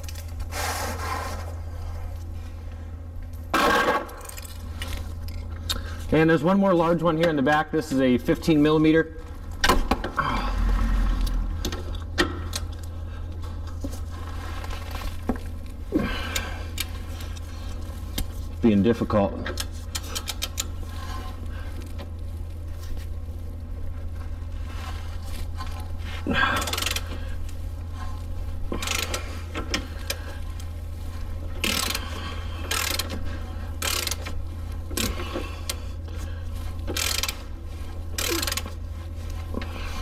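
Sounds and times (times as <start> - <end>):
steady low hum: 0.0 - 40.0
ratchet wrench clicking: 19.6 - 20.7, 26.6 - 27.1, 28.8 - 29.2, 31.6 - 33.2, 33.8 - 35.2, 36.9 - 37.4, 38.2 - 38.7.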